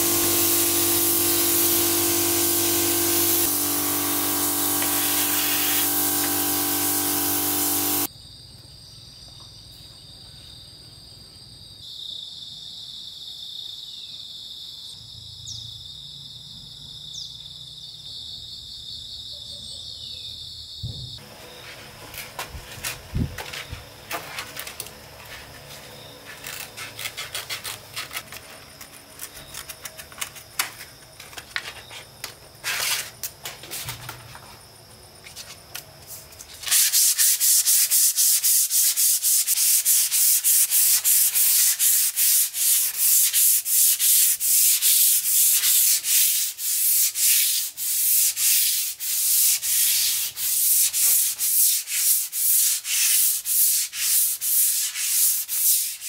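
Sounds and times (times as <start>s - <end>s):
sanding pad rasping on wood: 0.0s - 8.1s, 36.6s - 56.0s.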